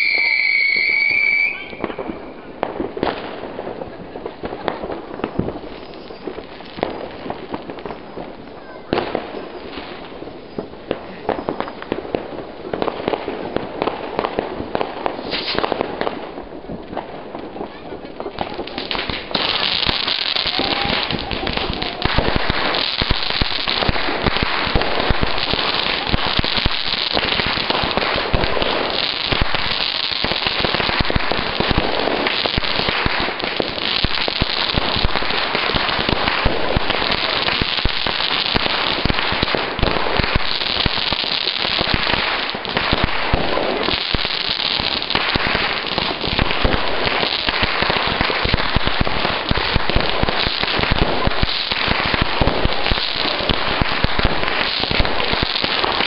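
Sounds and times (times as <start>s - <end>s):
fireworks and firecrackers banging: 0.0s - 56.0s.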